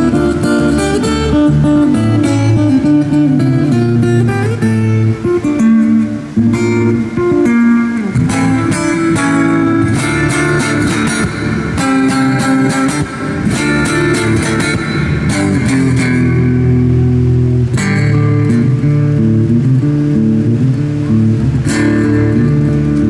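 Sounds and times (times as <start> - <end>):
fingerstyle acoustic guitar: 0.0 - 23.0.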